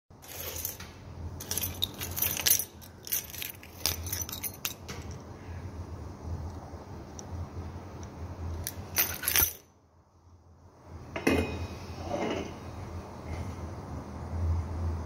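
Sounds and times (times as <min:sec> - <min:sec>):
keyring clicks and clinks: 0:01.4 - 0:05.2, 0:08.6 - 0:09.6
rustling handling noise: 0:01.4 - 0:05.2.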